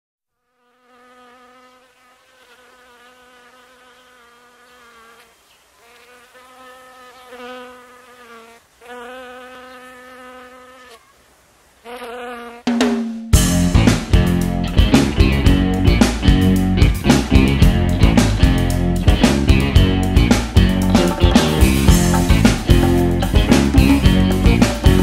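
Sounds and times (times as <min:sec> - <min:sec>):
flying insect buzzing: 0:00.4 - 0:13.3, 0:20.6 - 0:25.0.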